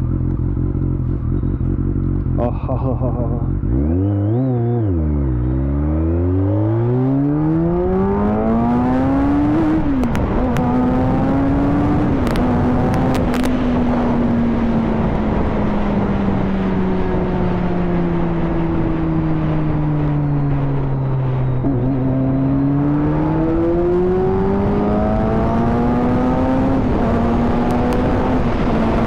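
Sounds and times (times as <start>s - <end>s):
motorcycle engine accelerating: 0.0s - 29.0s
wind rush: 7.4s - 22.1s.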